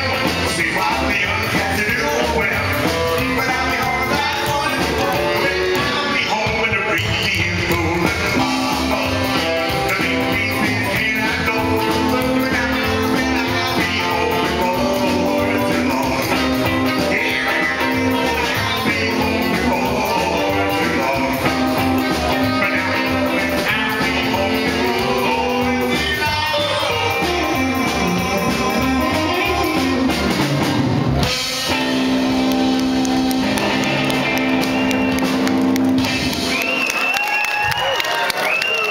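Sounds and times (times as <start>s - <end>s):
man singing: 0.0s - 30.4s
rockabilly band playing: 0.0s - 38.9s.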